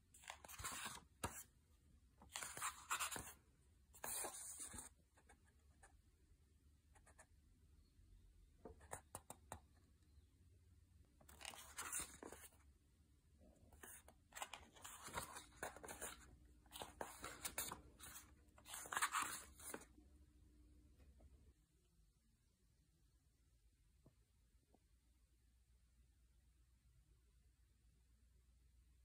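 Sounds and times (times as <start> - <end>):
book pages rustling: 0.1 - 1.5, 2.2 - 3.4, 4.0 - 5.0, 11.2 - 12.6, 13.8 - 19.9.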